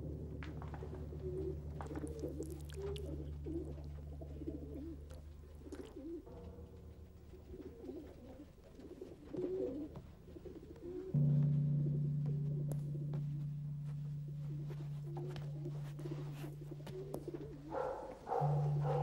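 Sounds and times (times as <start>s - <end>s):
low steady drone: 0.0s - 5.6s, 11.1s - 19.0s
pigeon cooing: 0.0s - 19.0s.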